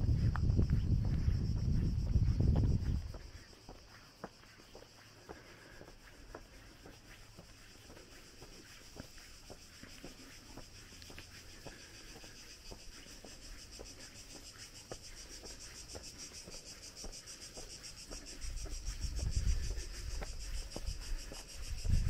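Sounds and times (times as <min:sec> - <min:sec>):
wind rumble on microphone: 0:00.0 - 0:03.6, 0:18.2 - 0:22.0
cicadas pulsing chorus: 0:00.0 - 0:22.0
footsteps crunching on stony path: 0:00.0 - 0:22.0.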